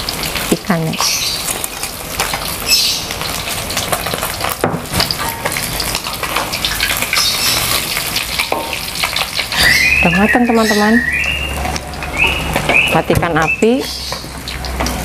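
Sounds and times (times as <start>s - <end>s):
oil sizzling in a wok: 0.0s - 15.0s
metal utensils scraping pans: 3.2s - 9.8s.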